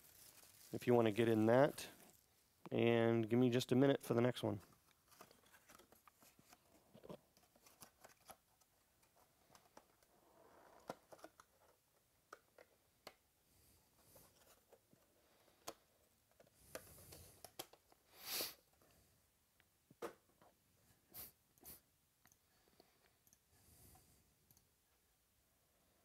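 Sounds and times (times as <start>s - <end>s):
soft rustles: 0.0s - 2.4s.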